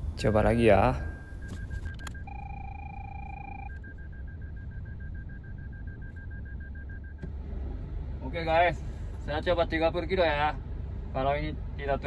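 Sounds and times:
steady warning tone: 0.0s - 7.3s
rapid reversing beeper: 0.2s - 7.2s.

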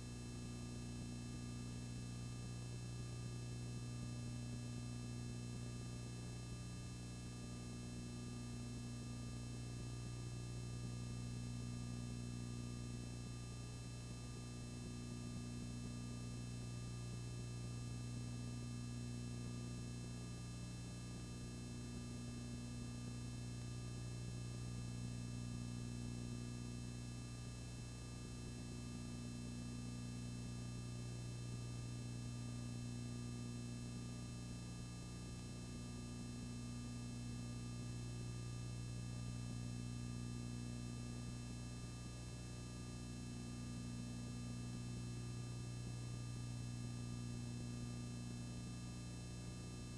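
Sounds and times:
low electrical hum: 0.0s - 49.9s.

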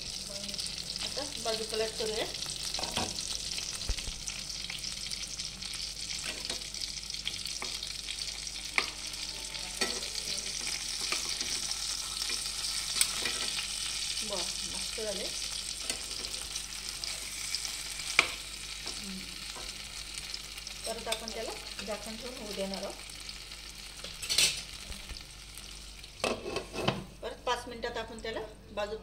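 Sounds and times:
chicken sizzling in hot oil: 0.0s - 27.1s
metal spatula scraping pan: 26.2s - 27.1s.

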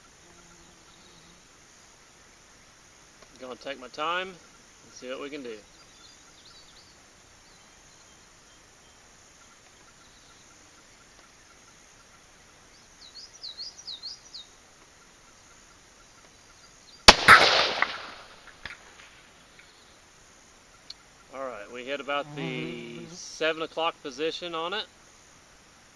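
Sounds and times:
bird chirping: 0.0s - 1.4s, 4.3s - 17.1s
rifle shot: 17.1s - 19.1s.

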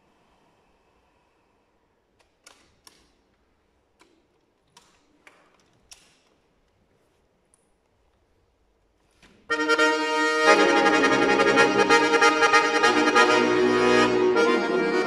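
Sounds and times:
room hiss: 0.0s - 2.2s.

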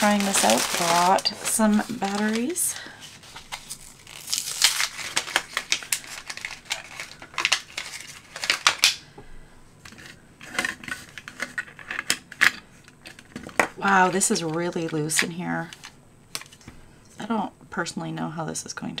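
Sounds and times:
plastic blister pack crinkling and tearing: 0.0s - 9.1s.

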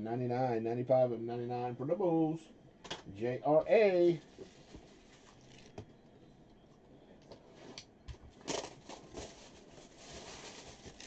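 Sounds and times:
plastic wrapping rustle: 4.1s - 5.8s, 8.3s - 11.0s.

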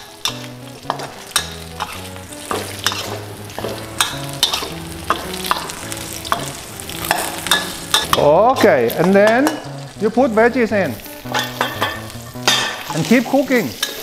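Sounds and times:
oil sizzling: 0.0s - 14.0s
metal spatula scraping a wok: 0.2s - 5.7s, 13.8s - 14.0s.

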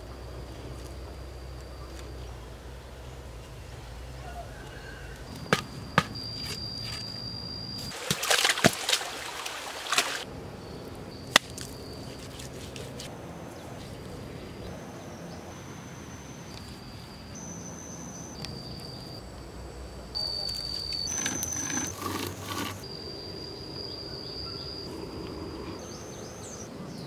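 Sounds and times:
scraping and digging in clay: 12.1s - 13.1s, 21.1s - 22.9s.

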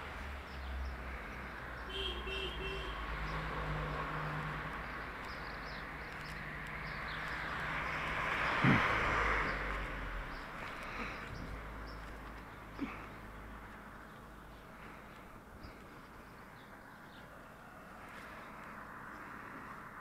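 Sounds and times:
birds chirping: 0.0s - 19.9s
car driving past: 2.8s - 5.1s, 6.2s - 12.0s.

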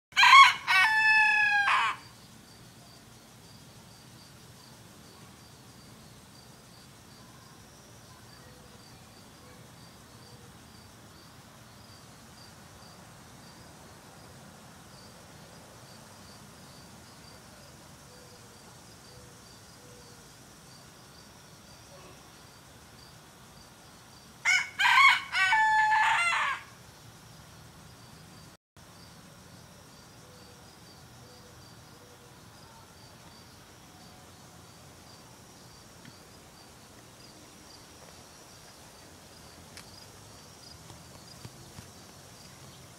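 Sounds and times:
rooster crowing: 0.1s - 2.1s, 24.4s - 26.8s
faint insect chirping: 0.2s - 42.9s.

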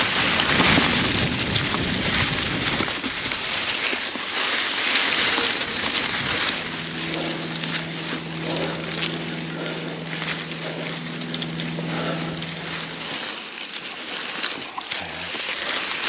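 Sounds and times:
bike tyres on dirt: 0.0s - 16.0s
freewheel buzzing: 0.0s - 16.0s
wind: 0.0s - 16.0s.

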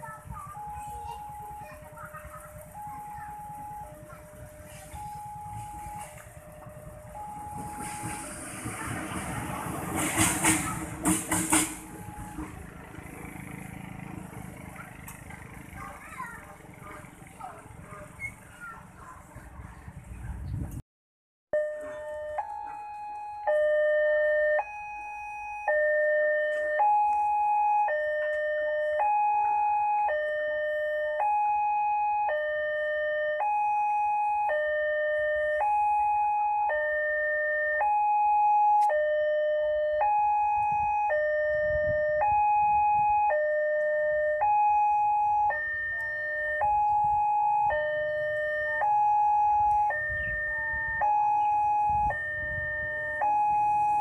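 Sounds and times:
electronic two-tone warning chime: 0.5s - 8.4s, 11.9s - 12.5s.

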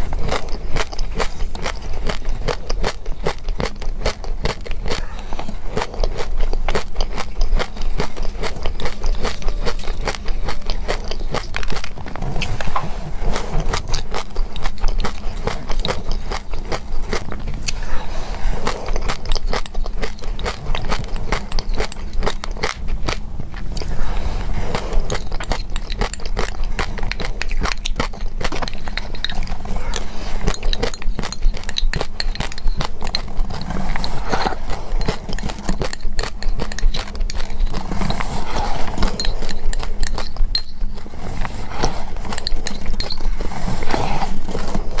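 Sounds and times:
crunchy chewing: 0.0s - 45.0s
metal spoon scraping glass mug: 18.9s - 22.7s, 25.0s - 44.4s.

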